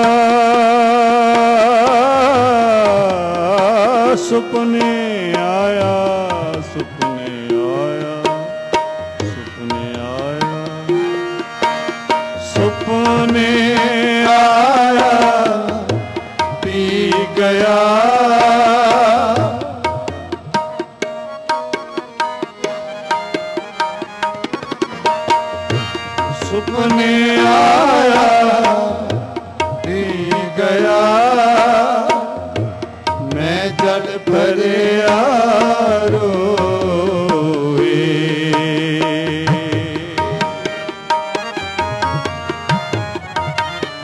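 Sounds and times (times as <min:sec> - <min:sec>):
harmonium melody: 0:00.0 - 0:44.0
tabla playing: 0:00.0 - 0:44.0.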